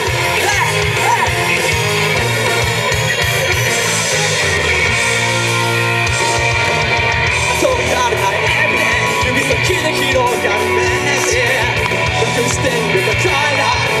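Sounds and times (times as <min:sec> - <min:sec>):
electric guitar: 0:00.0 - 0:14.0
live rock band: 0:00.0 - 0:14.0.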